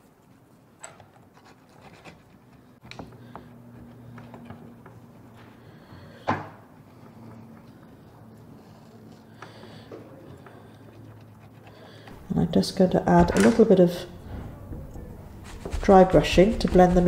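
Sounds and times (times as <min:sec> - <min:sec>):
metal tool scratching pastel: 0:15.3 - 0:17.0.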